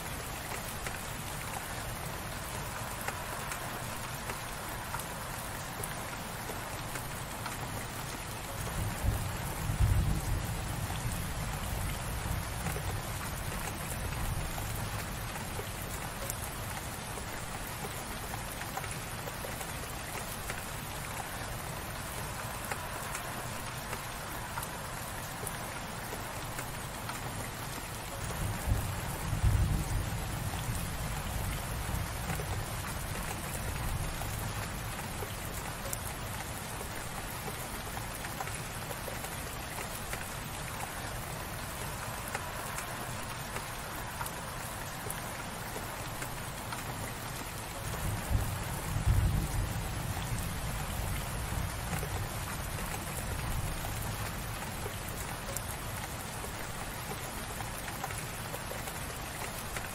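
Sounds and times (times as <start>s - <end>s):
light rain pattering: 0.0s - 59.9s.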